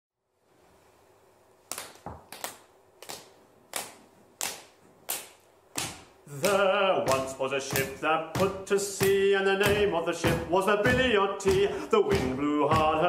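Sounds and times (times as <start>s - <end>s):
hand claps keeping a beat: 1.7s - 13.0s
low thuds: 6.5s - 13.0s.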